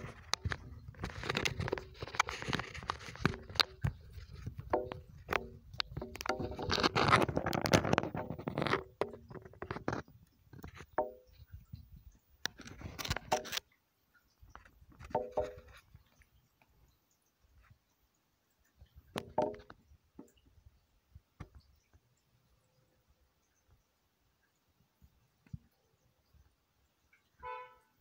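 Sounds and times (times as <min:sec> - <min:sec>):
scraping and rustling handling noise: 0:00.0 - 0:11.4.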